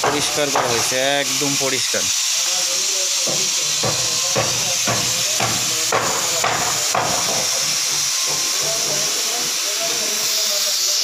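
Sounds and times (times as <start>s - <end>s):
steady hiss: 0.0s - 11.0s
regular knocking strokes: 3.2s - 9.2s.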